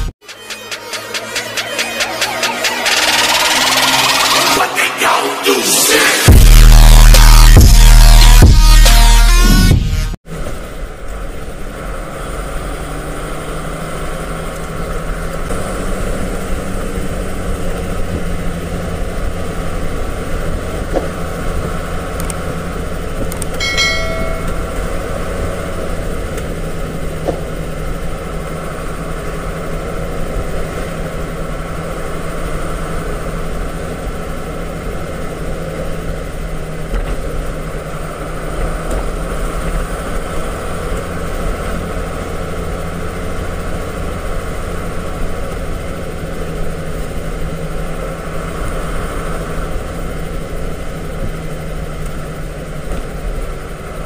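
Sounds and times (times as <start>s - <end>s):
truck engine running: 0.0s - 54.0s
high-pitched tone: 23.6s - 25.5s.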